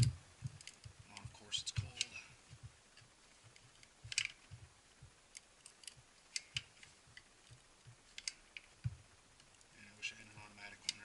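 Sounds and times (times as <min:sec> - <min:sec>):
caulking gun clicking: 0:03.0 - 0:04.6.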